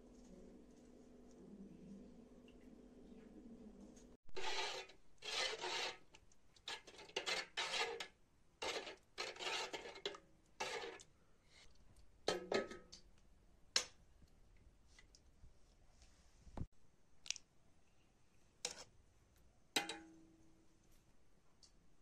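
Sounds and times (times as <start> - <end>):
metal ladle scraping pot: 4.4 - 11.1.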